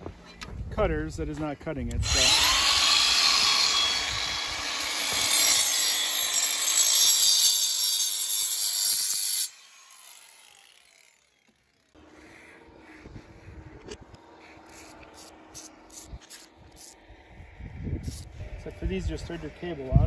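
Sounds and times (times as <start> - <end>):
angle grinder cutting steel cable: 1.9 - 12.1, 13.8 - 17.0
motor winding down: 2.0 - 6.7, 9.3 - 12.0.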